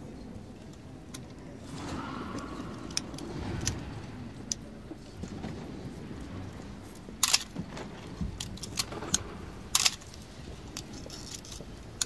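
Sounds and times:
film camera mechanism clacking: 9.8 - 10.1.

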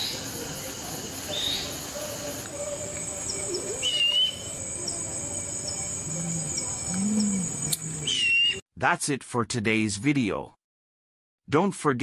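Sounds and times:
high insect drone: 0.0 - 8.3
wavering whistled bird call: 3.5 - 4.6, 8.0 - 8.6.

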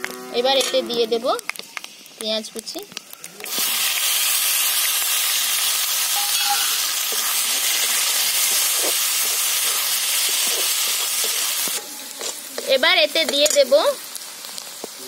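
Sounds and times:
onion sizzling in hot oil: 0.0 - 15.0
metal spatula stirring: 6.0 - 13.8.

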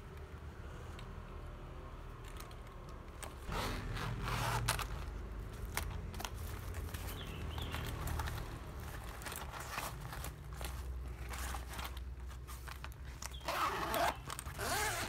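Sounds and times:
fabric rustling and scraping: 3.2 - 15.0.

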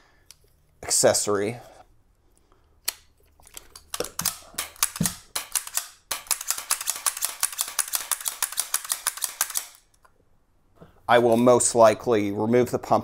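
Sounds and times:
metallic clicking of pistol pump: 2.8 - 10.1.

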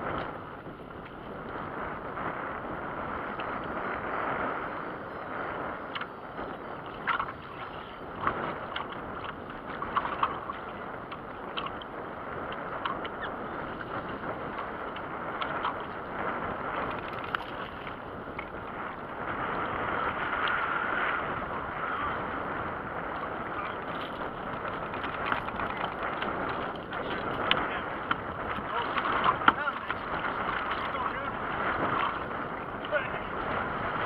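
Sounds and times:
water slapping boat hull: 0.0 - 34.0
wind: 0.0 - 34.0
light ticks: 5.9 - 6.1.

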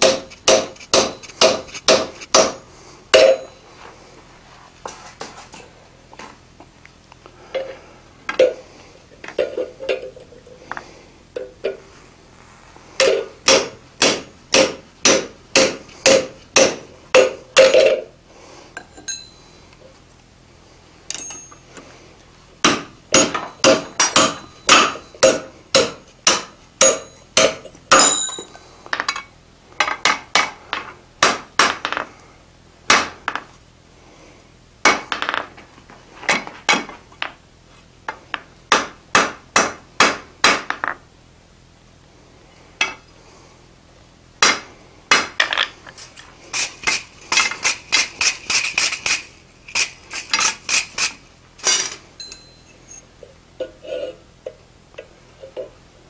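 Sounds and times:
hammer striking metal on anvil: 0.0 - 3.6, 13.0 - 18.0, 22.6 - 29.2, 42.8 - 43.0.

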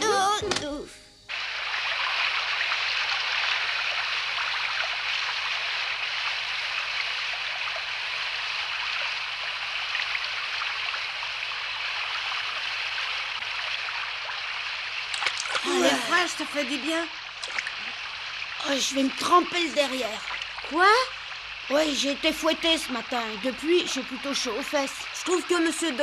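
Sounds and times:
stream flowing over stones: 9.8 - 26.0.

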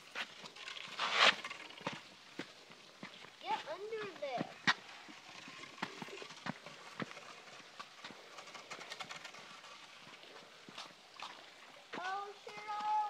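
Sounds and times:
footsteps on a dirt trail: 0.0 - 13.0
walking stick knocking on ground: 1.0 - 4.8.

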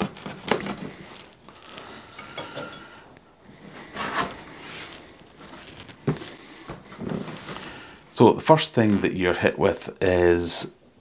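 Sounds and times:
cardboard flap rustling: 0.0 - 1.8, 3.9 - 6.3.

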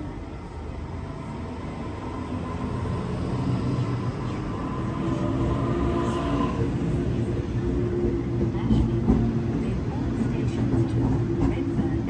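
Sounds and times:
electric train whine: 0.0 - 8.4
train wheels rumbling on rail: 0.0 - 12.0.

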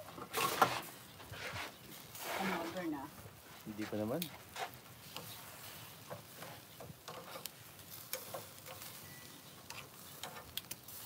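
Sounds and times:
meat sizzling on a grill: 0.0 - 11.0
metal tongs clicking on grate: 7.0 - 9.0, 9.6 - 10.8.

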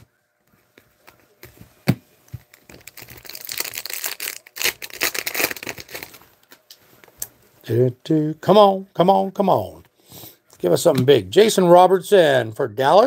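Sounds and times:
foil wrapper crinkling and tearing: 2.5 - 6.6
foil wrapper cracking: 2.6 - 6.2.

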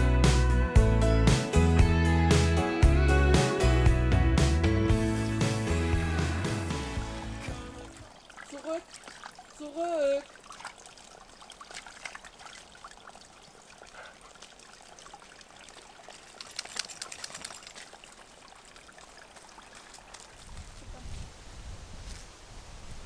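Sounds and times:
dog splashing through stream: 7.2 - 21.1.

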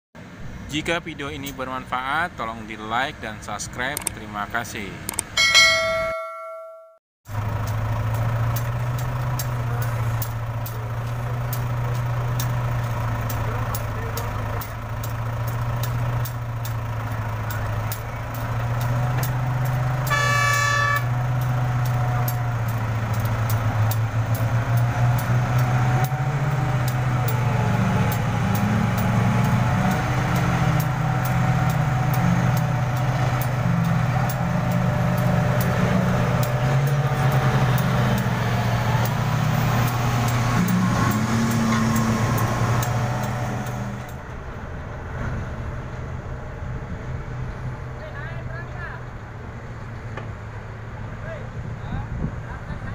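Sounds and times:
diesel engines running: 0.2 - 6.3, 7.3 - 52.9
horn blast: 20.0 - 21.2.

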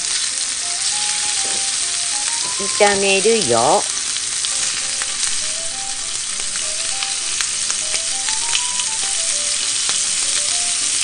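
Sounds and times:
meat sizzling in hot oil: 0.0 - 11.0
faint background music: 0.6 - 3.9.

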